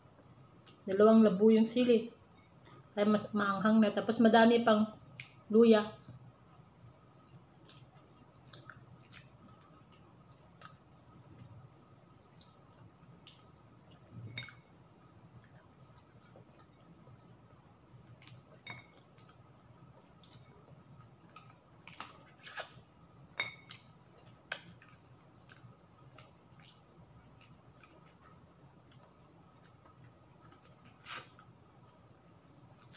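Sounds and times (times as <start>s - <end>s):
person chewing food: 7.6s - 14.6s, 15.3s - 22.8s, 23.7s - 32.9s.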